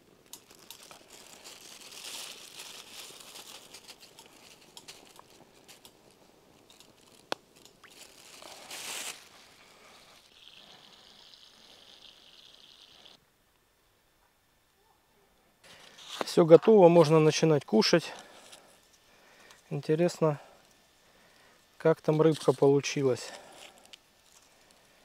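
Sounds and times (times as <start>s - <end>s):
oil hissing: 7.8s - 13.2s
fish frying in oil: 9.8s - 13.2s.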